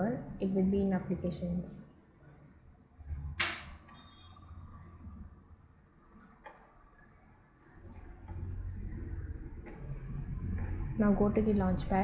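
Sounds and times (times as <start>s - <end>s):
computer mouse clicks: 2.2s - 2.5s, 4.7s - 5.2s, 6.1s - 6.7s, 7.6s - 8.4s
low hum: 4.2s - 12.0s.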